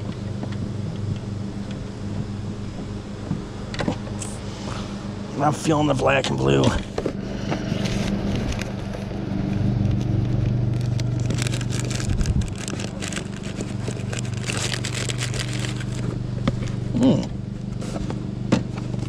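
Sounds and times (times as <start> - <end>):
steady low hum: 0.0 - 19.0
plastic bag crinkling: 10.0 - 16.2.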